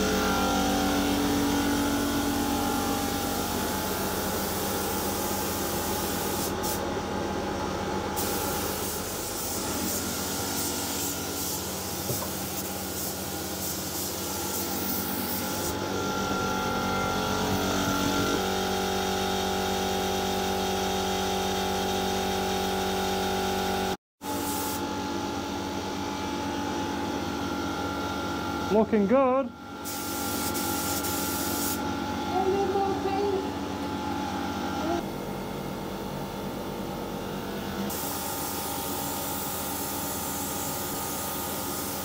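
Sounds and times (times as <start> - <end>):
paint sprayer and fans humming: 0.0 - 42.0
hiss of paint spraying: 3.4 - 6.8, 8.2 - 15.8, 29.8 - 31.8, 37.9 - 42.0.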